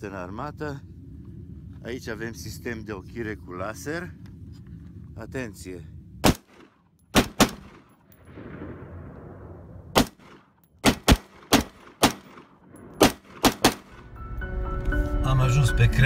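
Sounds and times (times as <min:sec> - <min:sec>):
rifle gunshots: 0:06.2 - 0:14.1.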